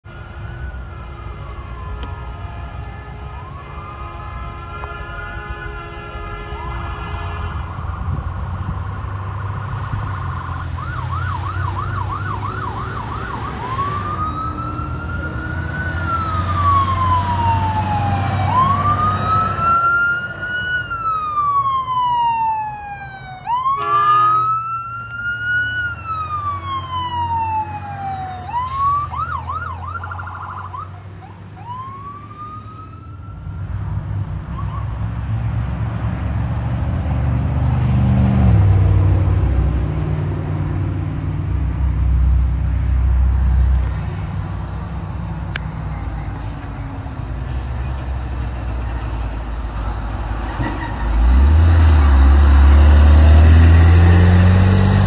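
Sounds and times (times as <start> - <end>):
heavy truck engine rumbling: 0.0 - 55.0
air horn: 1.1 - 7.8, 23.7 - 24.6
siren wailing and yelping: 10.4 - 33.7.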